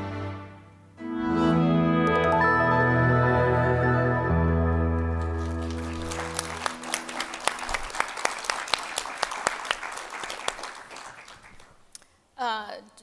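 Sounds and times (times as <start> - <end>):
music with sustained tones: 0.0 - 7.7
audience clapping: 5.0 - 12.0.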